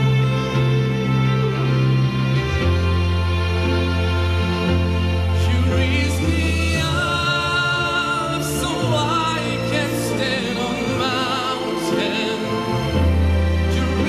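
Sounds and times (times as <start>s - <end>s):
backing track with bass notes: 0.0s - 14.0s
man singing into a microphone: 5.3s - 14.0s.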